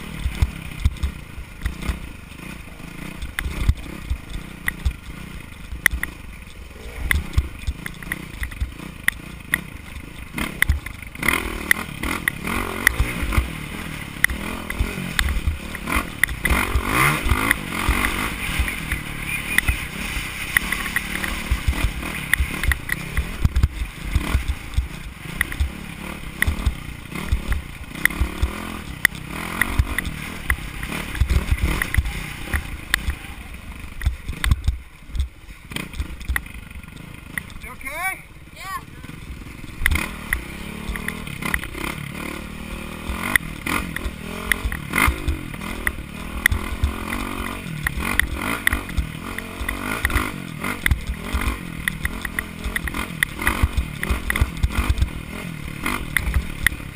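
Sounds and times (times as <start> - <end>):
dirt bike engine revving: 0.0 - 56.9
thumps and knocks from bumps: 20.8 - 25.8.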